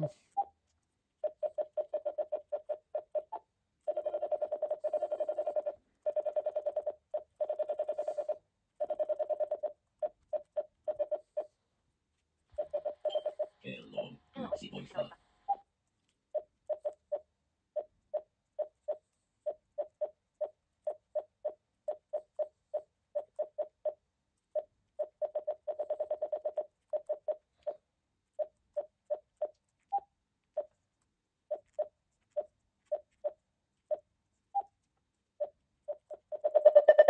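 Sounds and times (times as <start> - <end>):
radio keypress beeps: 1.2 - 11.5.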